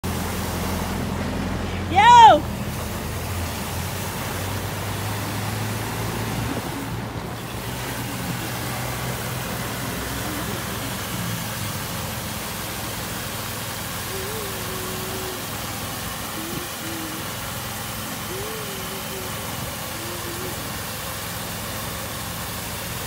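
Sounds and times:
low engine hum: 0:00.0 - 0:23.0
water spraying hiss: 0:00.0 - 0:23.0.

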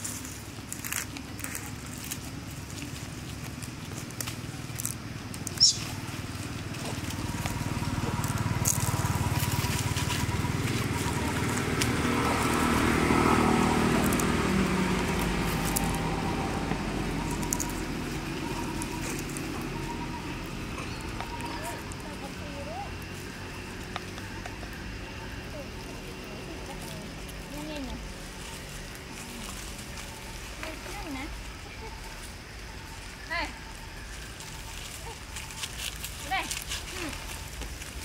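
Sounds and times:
dry leaves crackling: 0:00.0 - 0:38.0
low motor hum: 0:00.0 - 0:38.0
monkey squealing: 0:05.6 - 0:06.0.

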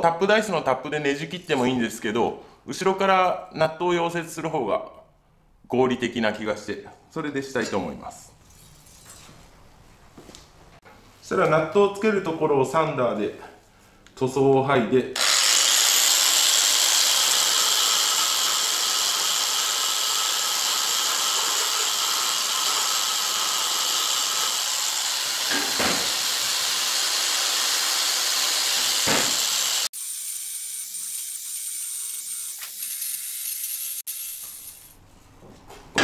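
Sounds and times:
belt sander grinding metal: 0:15.2 - 0:34.9.

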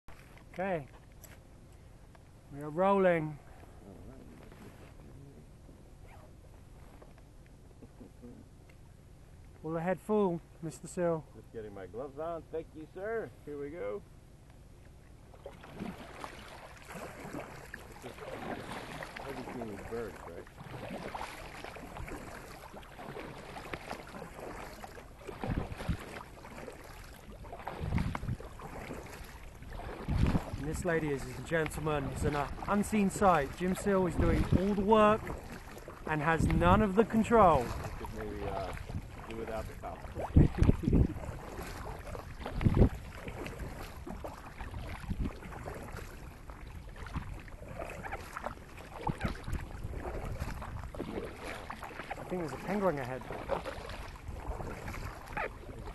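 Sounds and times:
paddle strokes in water: 0:00.1 - 0:11.4, 0:12.8 - 0:55.9
water splashes and drips: 0:15.2 - 0:55.9
wind on microphone: 0:25.3 - 0:26.2, 0:27.4 - 0:52.6, 0:53.2 - 0:55.9.

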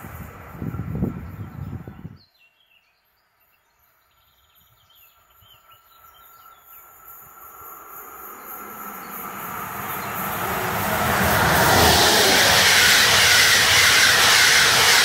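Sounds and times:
approaching train rumble: 0:00.0 - 0:02.2, 0:05.6 - 0:15.0
birds chirping: 0:04.2 - 0:15.0
loud low rumble: 0:07.5 - 0:15.0.

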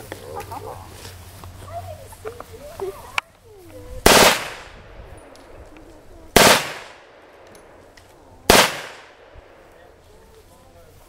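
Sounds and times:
machine pistol firing bursts: 0:04.0 - 0:04.8, 0:06.4 - 0:07.2, 0:08.5 - 0:09.3.

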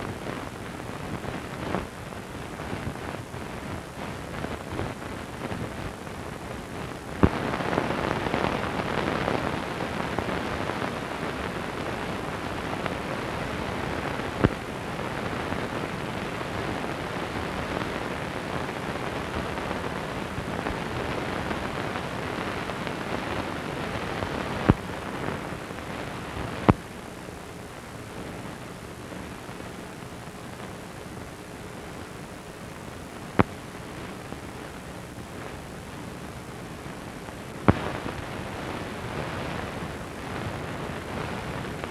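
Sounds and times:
film soundtrack hiss: 0:00.0 - 0:41.9
sharp pops: 0:37.7 - 0:38.0.

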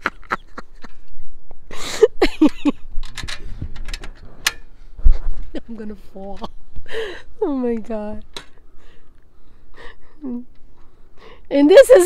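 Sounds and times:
person laughing: 0:00.0 - 0:01.1, 0:01.7 - 0:02.8
metal bracket and bolts clinking: 0:03.0 - 0:04.7.

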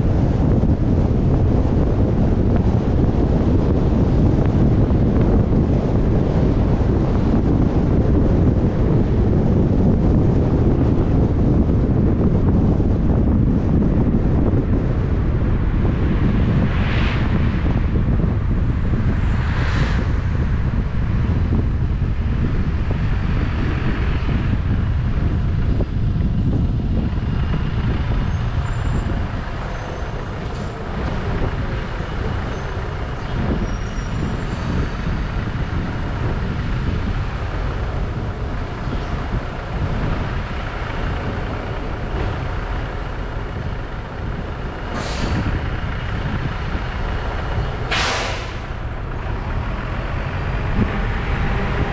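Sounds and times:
car road and wind noise: 0:00.0 - 0:51.9
short sharp hiss: 0:47.9 - 0:48.6.

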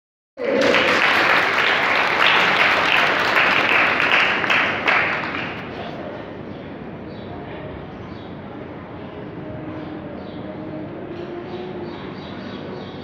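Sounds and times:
audience applauding: 0:00.4 - 0:05.9.

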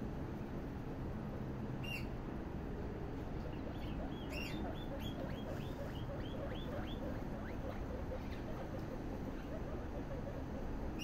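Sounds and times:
guinea pigs squeaking: 0:01.8 - 0:02.1, 0:03.4 - 0:11.0.

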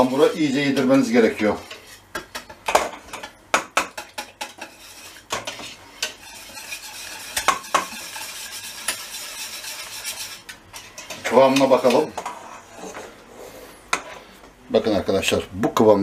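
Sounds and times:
wet swishing of batter: 0:04.6 - 0:10.9.

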